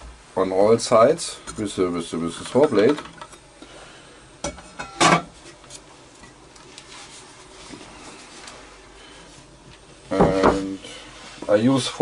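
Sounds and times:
faint rubbing and shuffling: 6.6 - 9.7, 10.7 - 12.0.

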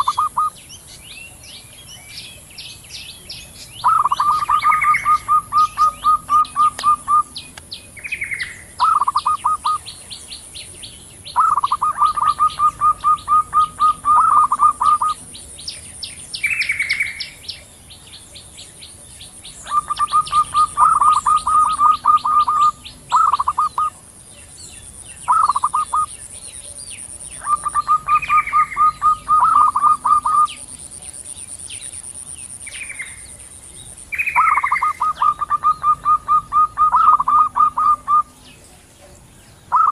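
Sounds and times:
high-pitched chirping: 0.0 - 0.6, 3.8 - 10.0, 11.3 - 15.3, 19.5 - 24.0, 25.2 - 31.3, 33.9 - 38.6
doves calling: 0.0 - 39.9.

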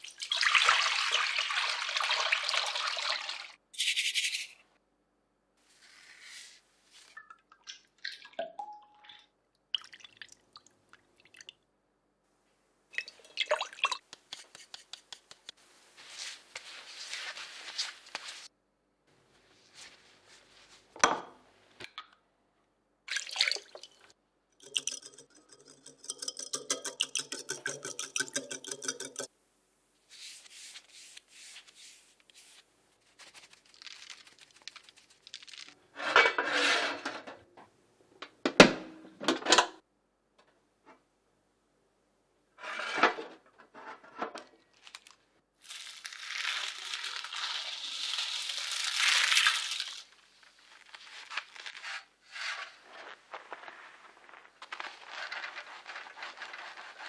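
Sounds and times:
utensils and dishes clattering: 24.6 - 29.3
whisk beating egg in glass bowl: 24.6 - 29.3.

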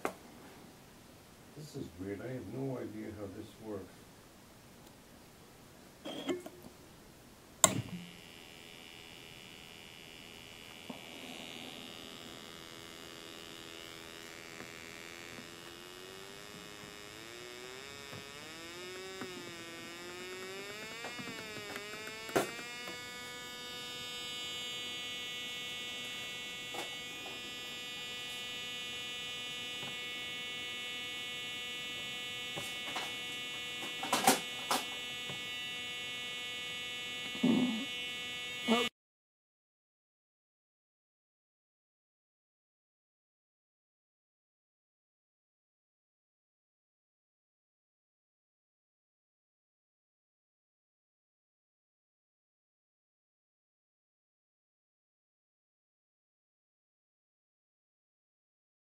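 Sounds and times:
switch clicks: 7.6 - 8.0
buzzy electronic tone: 7.6 - 38.9.

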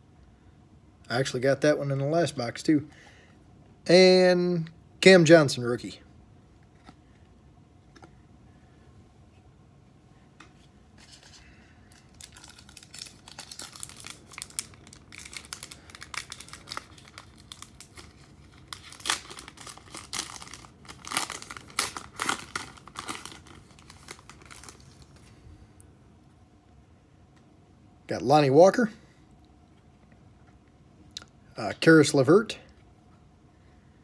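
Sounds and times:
foil wrapper crinkling and tearing: 11.0 - 25.3.

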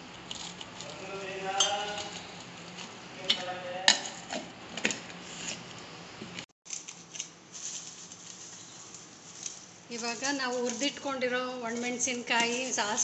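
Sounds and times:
utensils clicking and rattling: 6.7 - 13.0.

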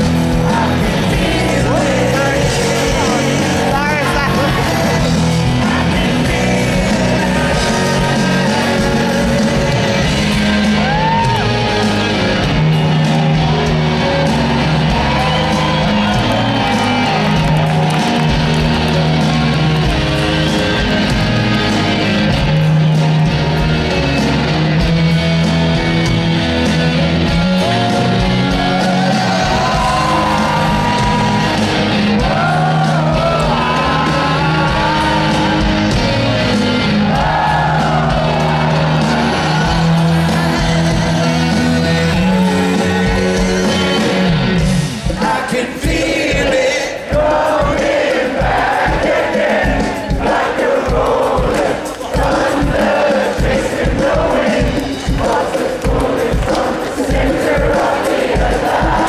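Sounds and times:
person singing: 0.0 - 12.2, 27.6 - 36.2, 37.2 - 59.0
rock band playing: 0.0 - 59.0.

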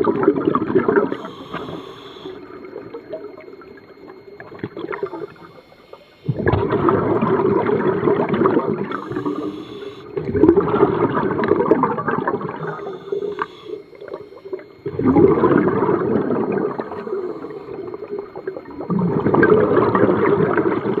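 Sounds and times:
scuba regulator breathing: 8.9 - 10.0, 12.5 - 14.6.

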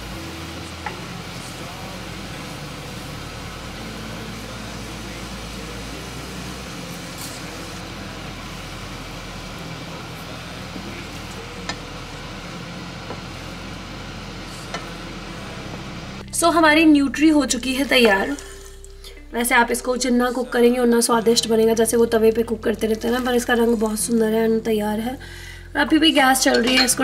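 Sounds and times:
food sizzling in a pan: 0.0 - 16.2, 17.8 - 19.0.

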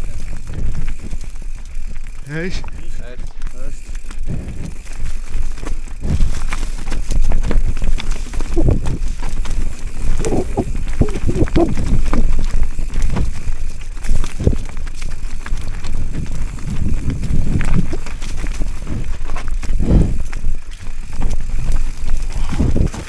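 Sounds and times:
mountain bike rumbling and rattling: 0.0 - 23.0.

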